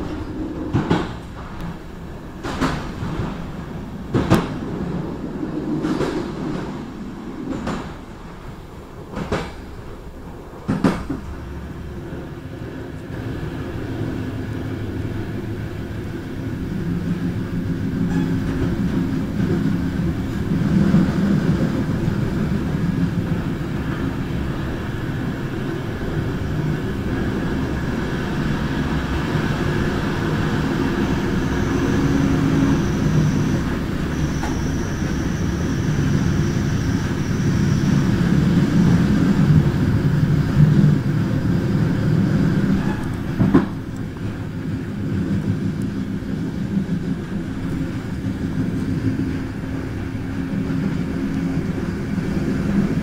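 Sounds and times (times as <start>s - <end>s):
train wheels rumbling on rails: 0.0s - 53.0s
faint high whine: 30.8s - 38.7s.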